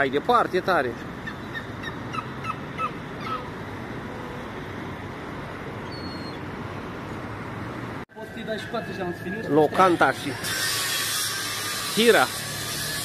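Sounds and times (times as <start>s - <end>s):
city background noise: 0.0s - 13.0s
thin whistle: 5.9s - 6.4s.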